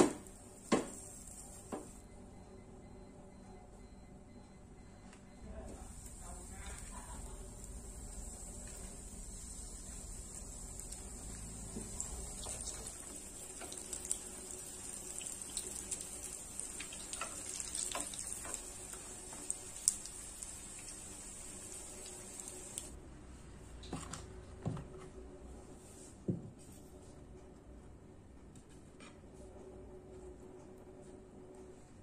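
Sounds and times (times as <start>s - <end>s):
food sizzling in oil: 5.9s - 23.0s.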